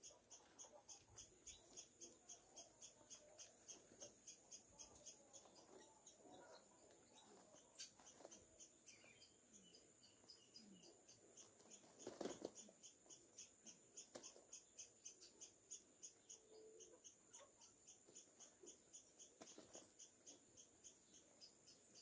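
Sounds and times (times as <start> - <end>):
rustle: 11.3 - 12.8, 18.0 - 20.4.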